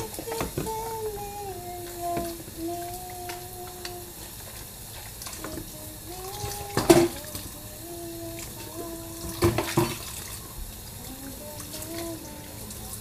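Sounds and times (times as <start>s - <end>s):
woman humming: 0.0s - 4.2s, 5.4s - 9.8s, 11.0s - 13.0s
dishes washed in steel sink: 0.0s - 13.0s
tap running: 0.0s - 13.0s
dishes clattering: 6.4s - 7.2s.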